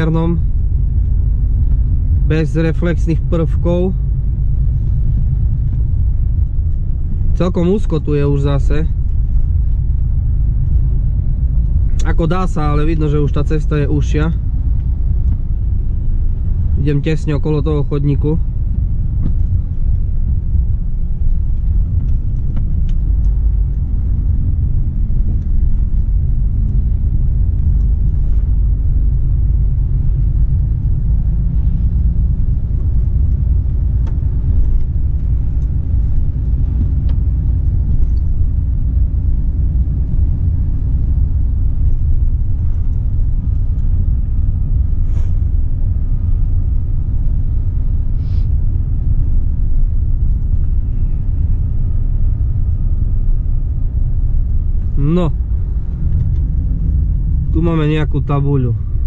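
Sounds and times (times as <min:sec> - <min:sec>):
road noise: 0:00.0 - 0:59.0
truck diesel engine rumble: 0:00.0 - 0:59.0.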